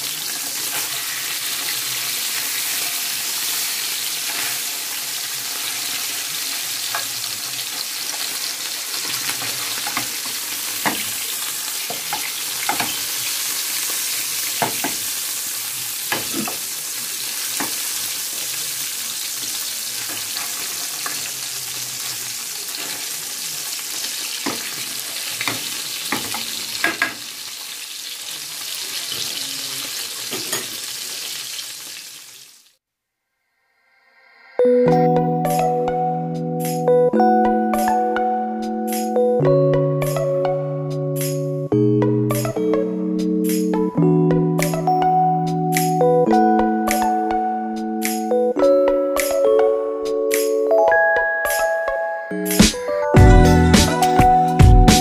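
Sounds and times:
fish sizzling in oil: 0.0 - 32.8.

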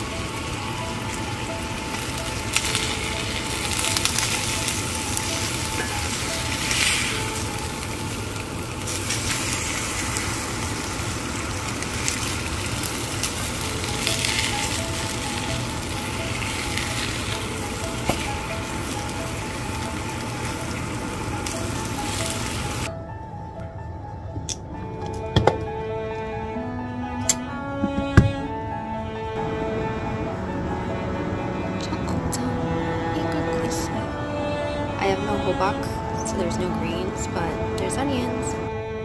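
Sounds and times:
fish fillets sizzling in a skillet: 0.0 - 22.9.

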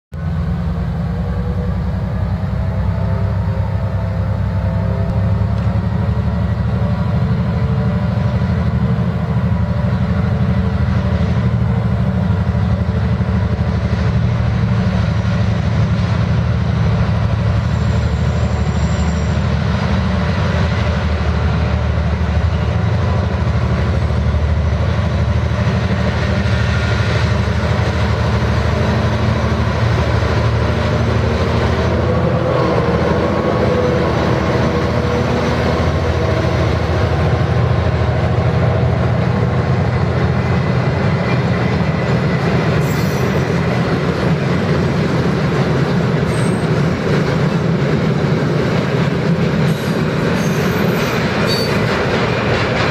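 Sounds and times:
diesel locomotive engine working: 0.1 - 52.9
wagons rolling on rails: 41.0 - 52.9.

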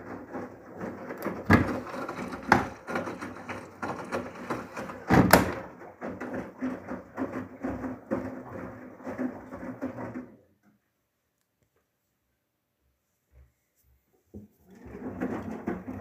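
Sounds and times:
washing machine humming: 0.0 - 10.4, 14.6 - 16.0
plastic detergent drawer knocks: 5.0 - 5.7.

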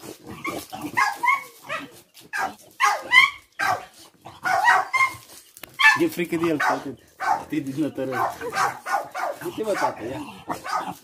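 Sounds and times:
puppy barking sharply: 2.4 - 5.2, 5.8 - 7.5, 8.2 - 10.0, 10.6 - 11.0.

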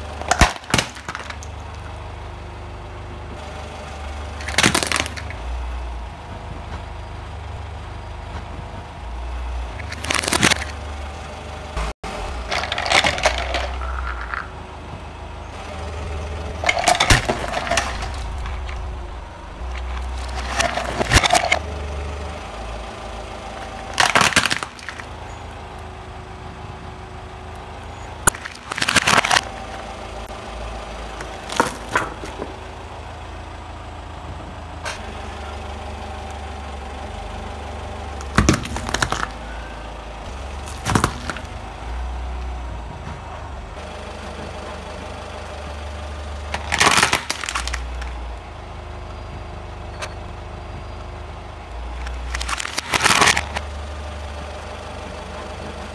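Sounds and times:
plastic toys cracking under tyre: 0.2 - 1.9, 4.4 - 5.4, 9.8 - 10.8, 12.4 - 14.6, 16.6 - 19.0, 19.7 - 21.6, 23.8 - 25.2, 28.2 - 29.6, 31.2 - 32.6, 38.2 - 39.6, 40.4 - 41.7, 46.5 - 48.2, 52.0 - 53.7
low rumble: 10.7 - 24.2.

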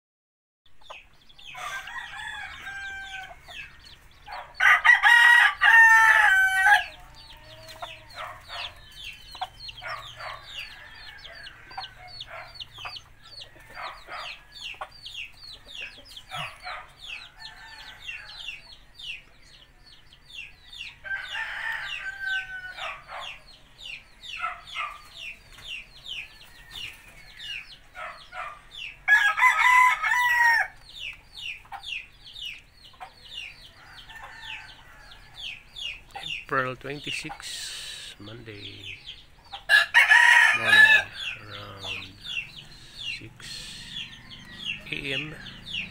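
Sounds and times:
chickens loud calls: 0.7 - 45.9
chickens peeping: 0.7 - 45.9.

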